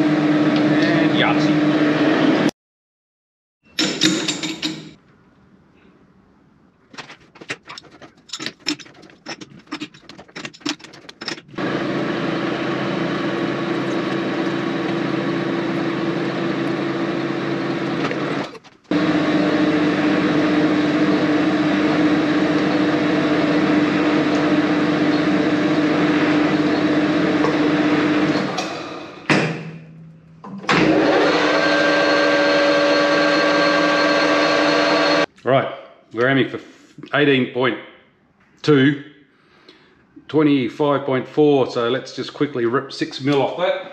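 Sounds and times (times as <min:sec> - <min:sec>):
lathe running: 0:10.8 - 0:29.3, 0:30.7 - 0:35.3.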